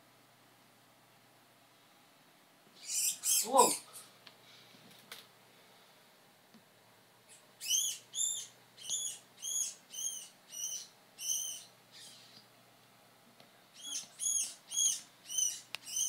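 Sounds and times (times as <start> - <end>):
rat squeaking: 2.8 - 3.9, 7.3 - 12.4, 13.8 - 16.0.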